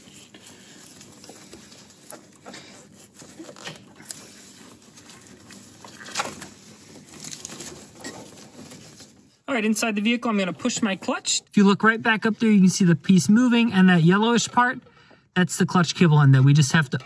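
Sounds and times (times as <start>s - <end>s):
cable clicks and rustles: 0.0s - 11.5s.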